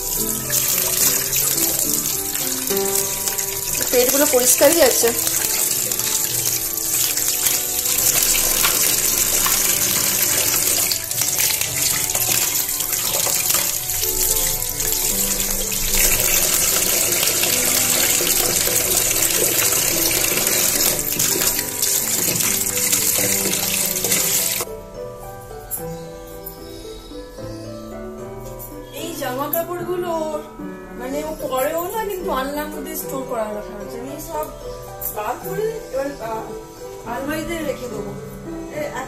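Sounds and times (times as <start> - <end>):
fish rinsed by hand: 0.0 - 24.7
tap water running into sink: 0.0 - 24.7
background music: 0.0 - 39.0.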